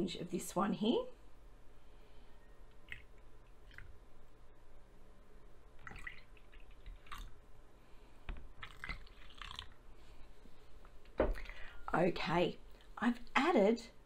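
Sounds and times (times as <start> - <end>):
liquid pouring into plastic pots: 5.8 - 7.4.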